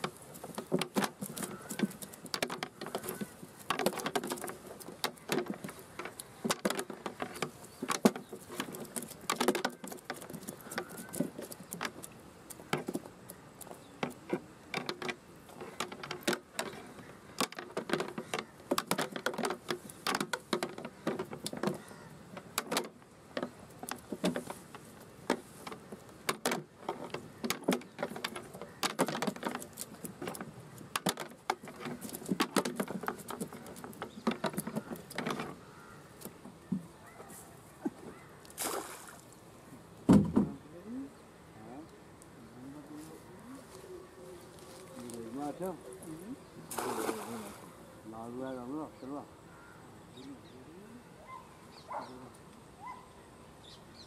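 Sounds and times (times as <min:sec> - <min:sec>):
prawns flapping on wet plastic: 0:00.0 - 0:36.4.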